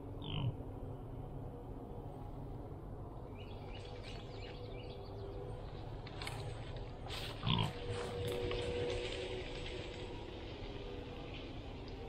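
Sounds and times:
rustling in dry leaf litter: 6.2s - 12.0s.

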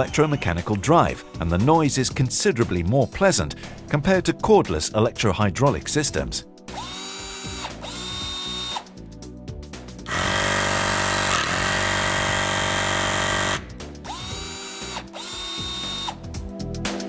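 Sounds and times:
crimping pliers motor whine: 10.1s - 16.2s.

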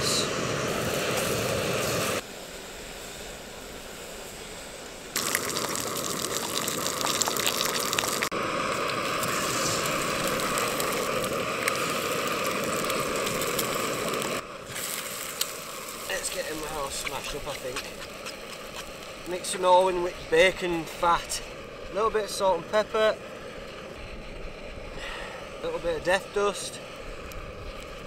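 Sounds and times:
bacon and eggs sizzling in pan: 5.0s - 28.0s.

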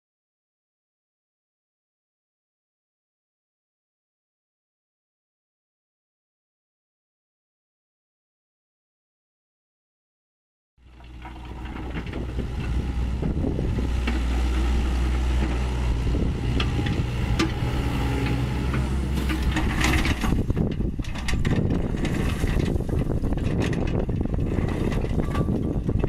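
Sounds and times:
crushed stone rattling and grinding: 10.8s - 26.0s
diesel engine running: 10.8s - 26.0s.

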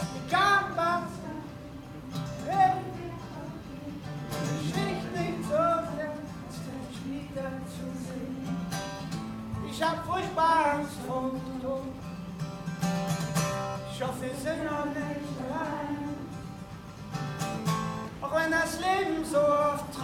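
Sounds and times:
person singing wordless melody: 0.0s - 8.7s
acoustic guitar strumming: 0.0s - 20.0s.

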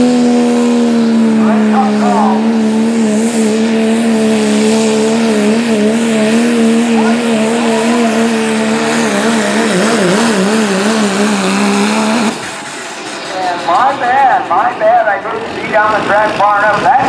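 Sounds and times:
diesel engine at high revs: 0.0s - 17.0s
hiss of exhaust and tyres: 8.6s - 14.3s.

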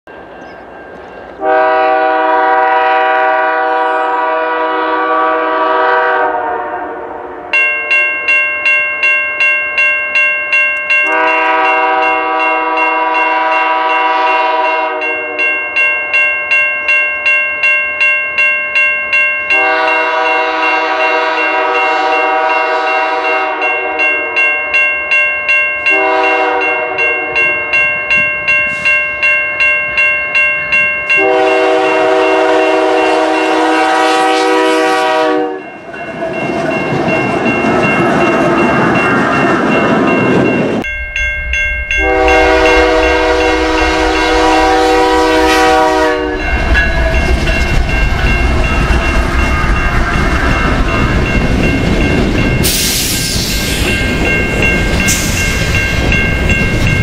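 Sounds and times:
crossing warning bell ringing: 0.1s - 6.6s, 7.2s - 57.0s
locomotive air horn blasts: 1.4s - 7.6s, 11.1s - 15.5s, 19.5s - 24.4s, 25.9s - 27.6s, 31.2s - 35.7s, 42.0s - 47.3s.

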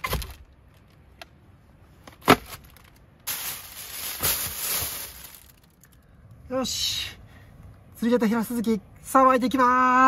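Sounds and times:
plastic bag rustling: 2.3s - 5.8s.

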